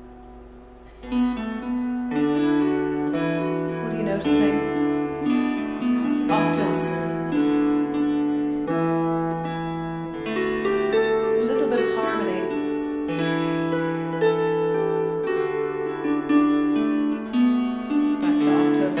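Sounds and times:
harp played slowly: 0.0s - 19.0s.

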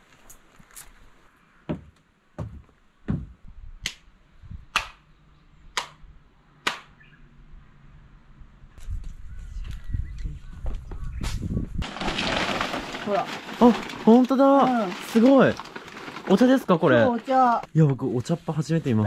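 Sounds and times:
dull knocks: 1.7s - 3.4s
sharp hand claps: 4.7s - 5.0s, 5.8s - 6.0s, 6.6s - 6.9s.

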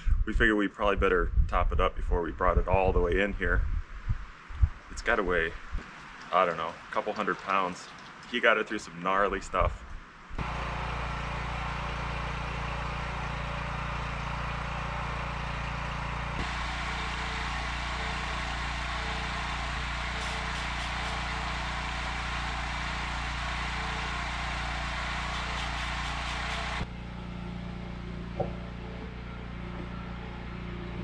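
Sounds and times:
grinding wheel on chain: 10.4s - 26.9s
generator running: 10.4s - 31.0s.

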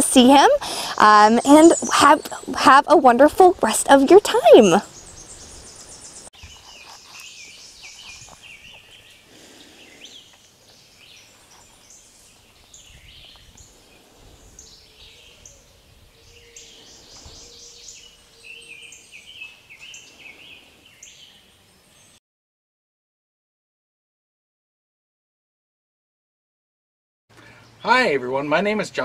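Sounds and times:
small birds chirping: 0.2s - 22.2s, 27.3s - 28.8s.

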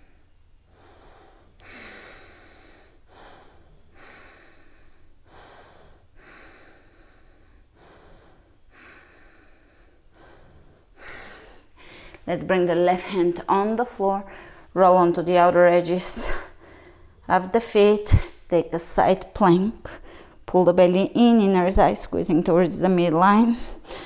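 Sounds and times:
woman breathing deeply: 0.0s - 12.3s, 14.2s - 14.8s, 16.1s - 17.2s, 19.9s - 20.4s, 23.6s - 24.0s.

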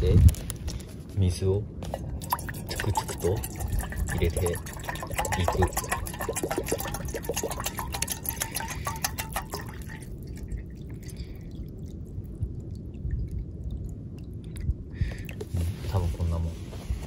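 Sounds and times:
water glugging into metal pot: 1.8s - 12.1s.

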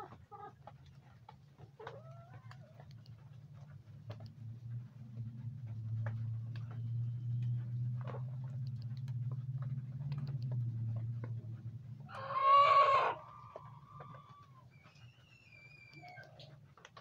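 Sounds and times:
faint ticks: 0.0s - 12.1s
low steady hum: 0.0s - 17.0s
hen calling: 12.1s - 14.6s.

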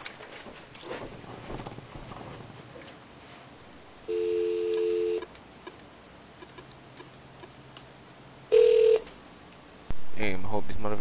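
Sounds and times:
telephone dial tone: 4.1s - 5.3s, 8.5s - 9.1s.

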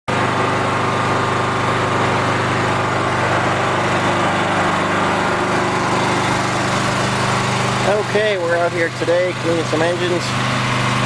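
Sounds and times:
small engine humming: 0.1s - 11.0s.

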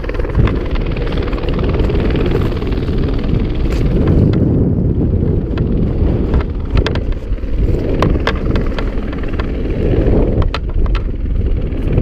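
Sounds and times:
helicopter rumble: 0.0s - 12.0s
wind buffeting microphone: 0.0s - 12.0s.

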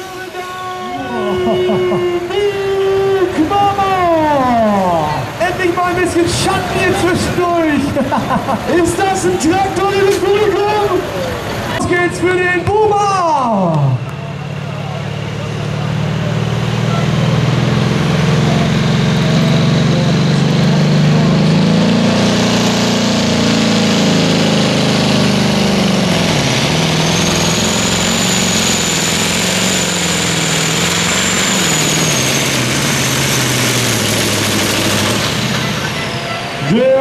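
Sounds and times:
tractor engine running under load: 14.0s - 36.8s.

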